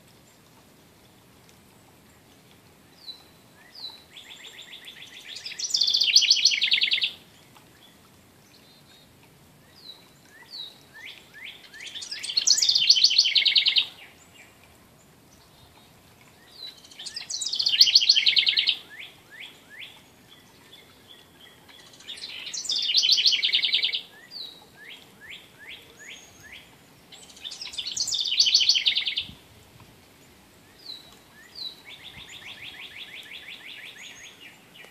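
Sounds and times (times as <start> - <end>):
wren trilling: 4.2 - 7.2, 11.7 - 13.9, 16.8 - 20.0, 21.8 - 24.1, 27.2 - 29.2.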